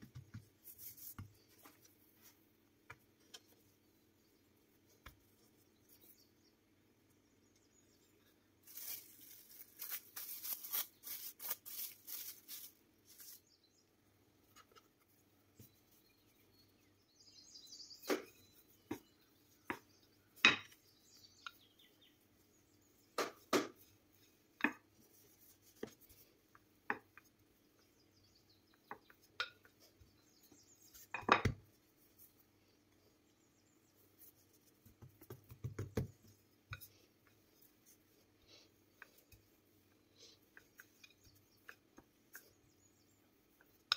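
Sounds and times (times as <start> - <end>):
rolling pin rolling dough: 33.9 - 43.9
hands crackling taps on dough: 34.8 - 36.9.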